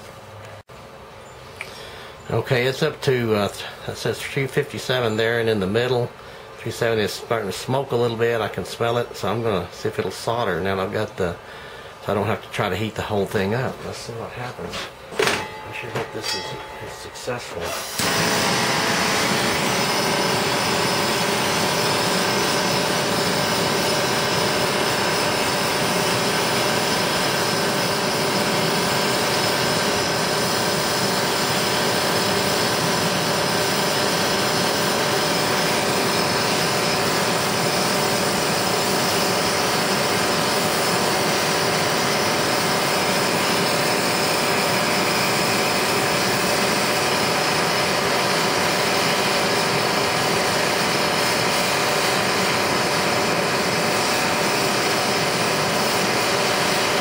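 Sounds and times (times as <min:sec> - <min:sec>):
camp stove burner running: 0:01.2 - 0:57.0
hand torch flame rushing: 0:17.6 - 0:57.0.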